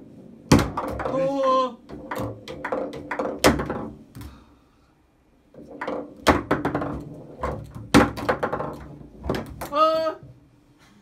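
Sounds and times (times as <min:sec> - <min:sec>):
foosball knocks and clacks: 0:00.4 - 0:04.4, 0:05.5 - 0:09.8.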